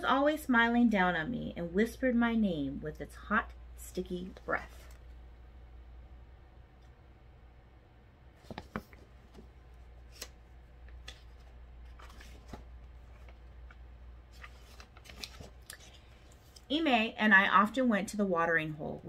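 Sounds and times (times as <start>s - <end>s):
low room hum: 0.0s - 19.0s
book pages turning: 8.4s - 16.6s.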